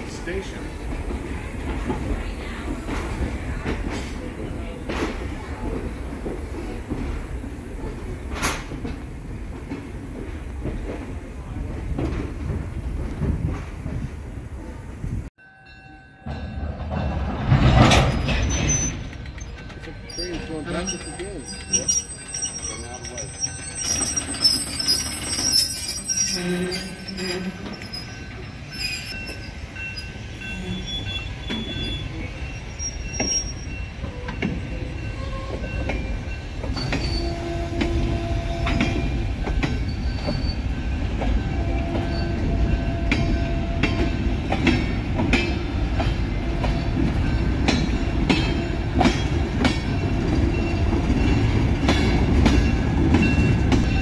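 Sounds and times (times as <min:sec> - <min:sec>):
low train rumble: 0:00.0 - 0:54.0
wheels clicking over rail joints: 0:16.3 - 0:29.5
wheel squeals: 0:18.1 - 0:35.9, 0:36.7 - 0:40.7.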